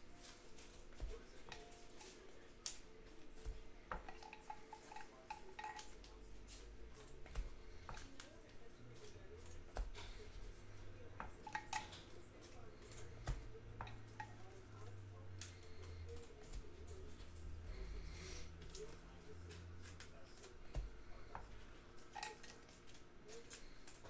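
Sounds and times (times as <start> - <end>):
cards and packaging handled: 0.0 - 3.6.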